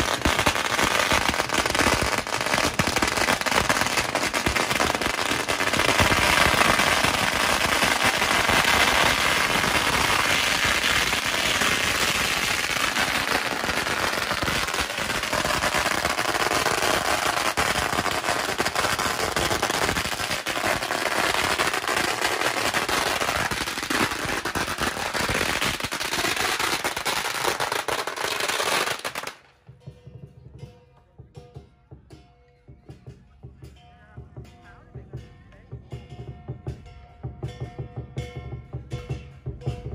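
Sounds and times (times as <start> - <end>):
firecrackers crackling: 0.0 - 29.8.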